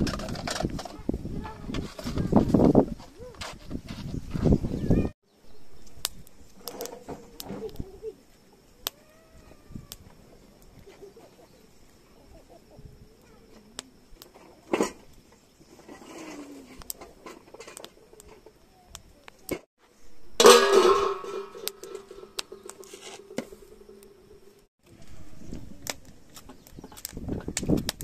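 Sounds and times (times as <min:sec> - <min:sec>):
metal pot clanging and ringing: 0:20.4 - 0:23.9
metal pots and utensils clinking: 0:20.4 - 0:24.0.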